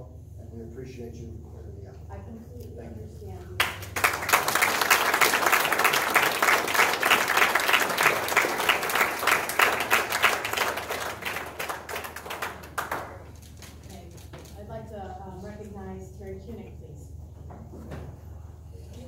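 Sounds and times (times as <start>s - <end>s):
audience applauding: 3.6s - 13.8s.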